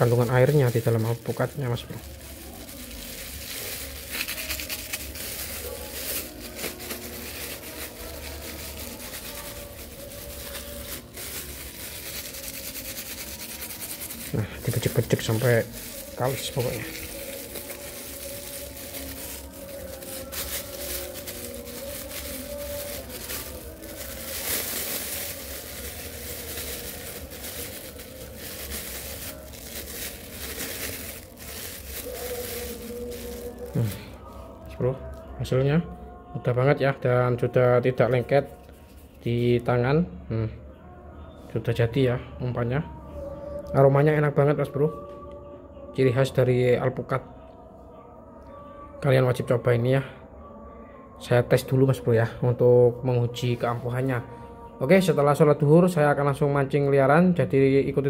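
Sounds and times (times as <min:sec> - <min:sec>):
plastic bag crinkling: 0:00.0 - 0:35.3.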